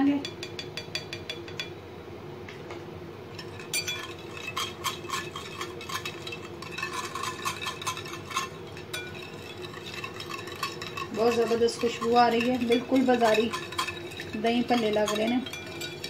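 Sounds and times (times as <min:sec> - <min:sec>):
whisk clinking in glass bowl: 0:03.4 - 0:16.0.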